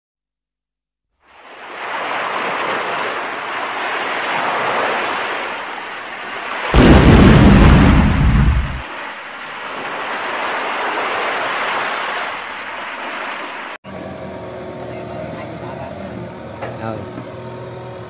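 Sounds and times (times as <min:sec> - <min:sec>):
deep rumbling boom: 0:06.8 - 0:08.8.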